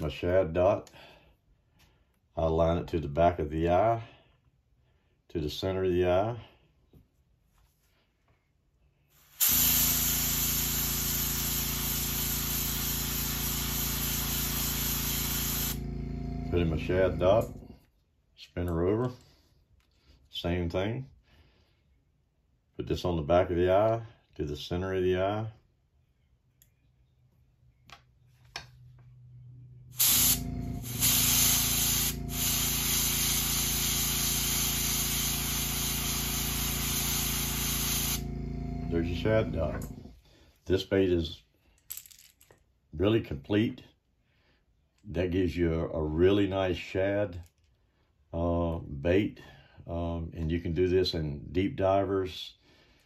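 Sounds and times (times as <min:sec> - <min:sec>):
airbrush spraying hiss: 0:09.1 - 0:15.9, 0:29.9 - 0:38.3
steady low hum: 0:09.5 - 0:17.8, 0:28.8 - 0:40.2
low steady hum: 0:15.6 - 0:17.9, 0:28.4 - 0:32.7, 0:38.1 - 0:40.2.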